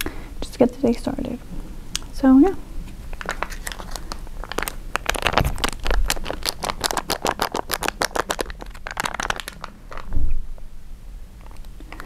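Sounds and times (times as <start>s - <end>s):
food packaging crinkling: 3.0s - 10.2s.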